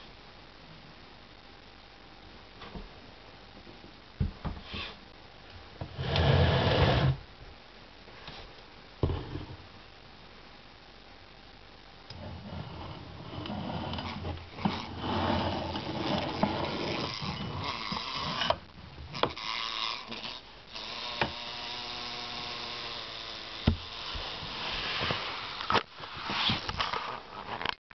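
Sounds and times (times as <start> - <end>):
wasp buzzing: 16.3 - 18.4.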